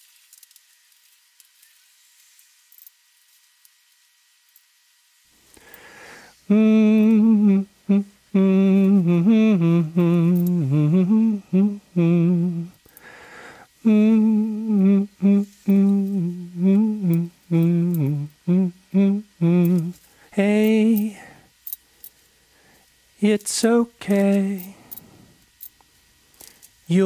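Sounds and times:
person humming a slow melody: 0:05.6 - 0:21.5, 0:23.2 - 0:25.4.

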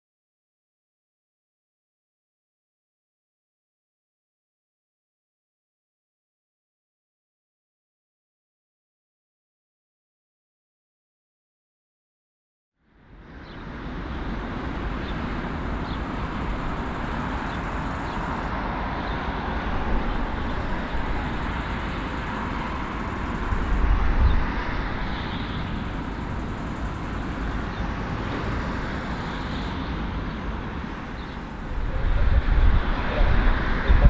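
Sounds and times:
jet engines whining: 0:13.1 - 0:34.0
deep engine rumble: 0:13.7 - 0:34.0.

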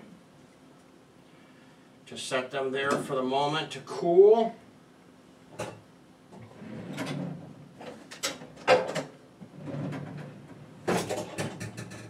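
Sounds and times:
low rummaging noise: 0:05.5 - 0:12.0.

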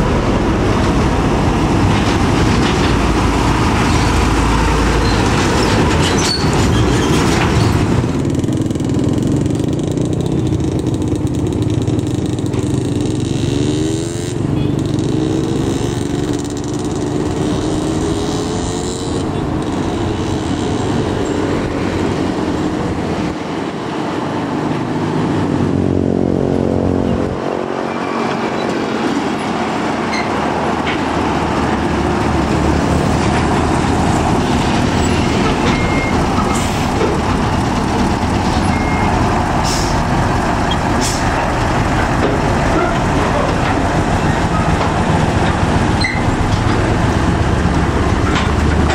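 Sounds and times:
diesel truck engine pulling away: 0:27.0 - 0:48.9.

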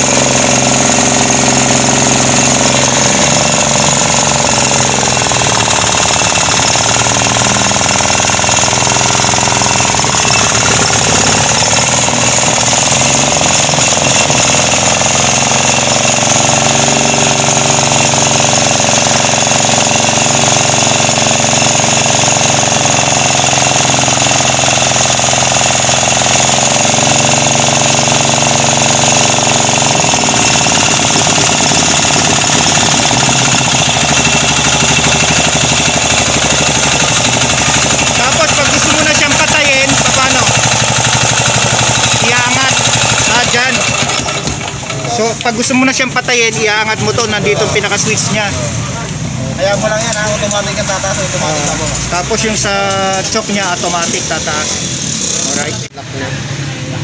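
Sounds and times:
single-cylinder engine running: 0:00.0 - 0:57.0.

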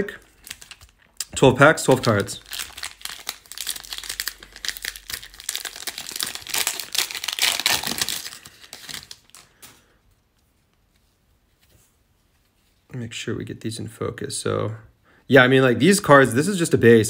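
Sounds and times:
foil wrapper tearing and crinkling: 0:00.3 - 0:01.0, 0:01.6 - 0:09.8.

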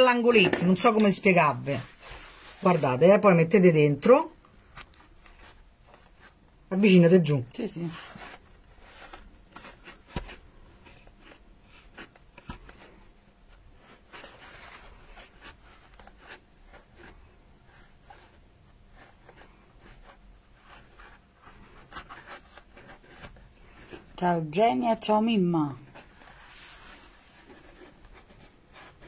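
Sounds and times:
tool scratching foam: 0:07.6 - 0:24.2, 0:25.8 - 0:29.0.

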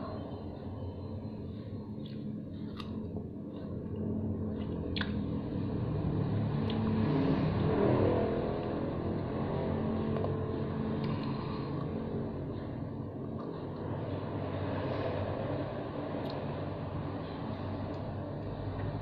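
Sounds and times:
chewing strawberry: 0:02.0 - 0:05.2
wet mouth clicks: 0:04.9 - 0:05.2.

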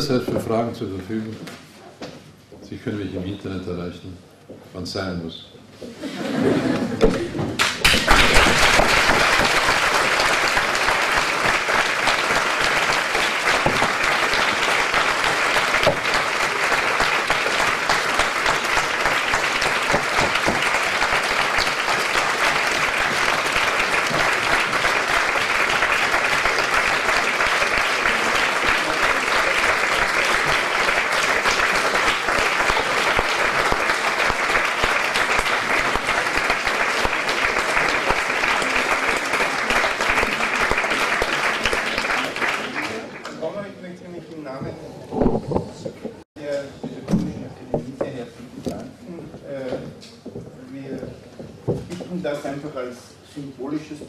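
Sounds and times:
audience applauding: 0:07.0 - 0:43.6.

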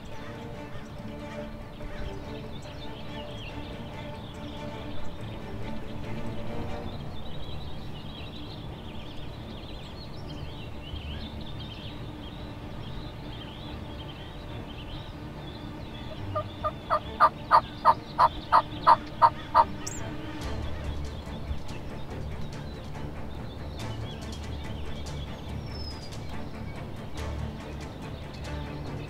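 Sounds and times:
turkey yelps: 0:16.3 - 0:19.7.

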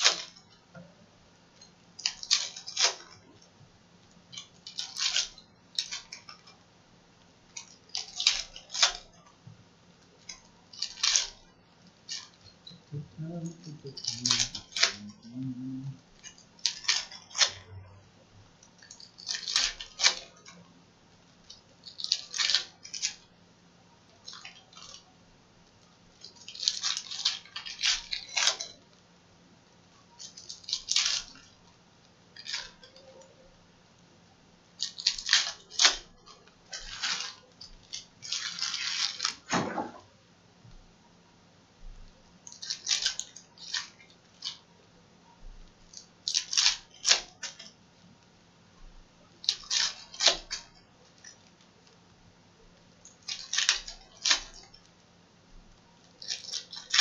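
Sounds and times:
foil wrappers tearing and crinkling: 0:00.0 - 0:00.4, 0:02.0 - 0:03.2, 0:04.3 - 0:06.5, 0:07.6 - 0:09.2, 0:10.2 - 0:15.4, 0:16.2 - 0:17.7, 0:18.8 - 0:20.6, 0:21.4 - 0:23.3, 0:26.2 - 0:28.8, 0:30.2 - 0:31.6, 0:32.3 - 0:33.3, 0:34.8 - 0:39.5, 0:42.4 - 0:44.6, 0:45.9 - 0:47.7, 0:49.4 - 0:52.0, 0:53.1 - 0:54.8, 0:56.1 - 0:57.0.

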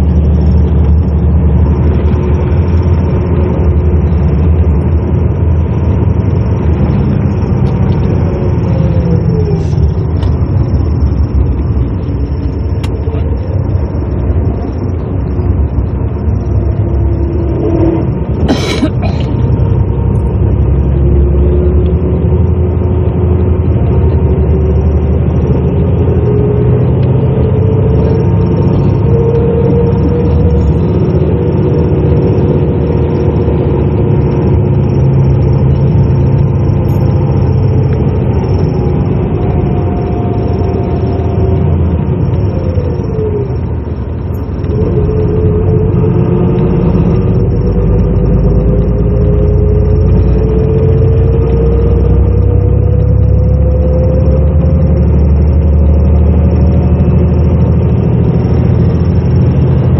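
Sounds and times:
bus engine and road rumble: 0:00.0 - 0:59.9
whine rising and falling in pitch: 0:23.8 - 0:59.9.

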